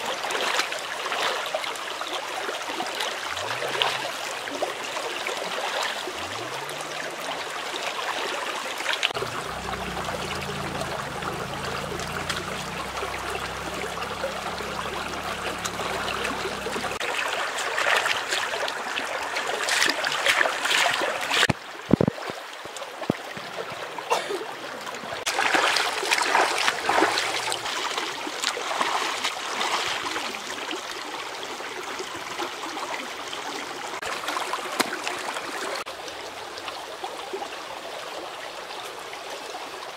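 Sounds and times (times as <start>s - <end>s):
shallow stream running: 0.0s - 39.9s
hands splashing in water: 25.3s - 30.0s.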